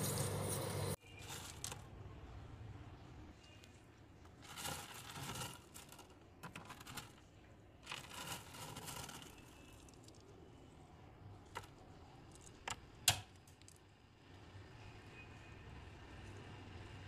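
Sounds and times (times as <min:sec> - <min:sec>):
fingers scooping crunchy ice: 0:04.4 - 0:07.2, 0:07.8 - 0:10.0.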